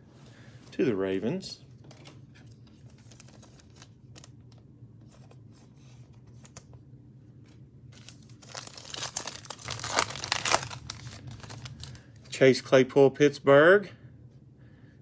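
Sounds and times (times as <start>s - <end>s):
foil wrapper crinkling: 2.7s - 4.5s, 7.9s - 12.3s.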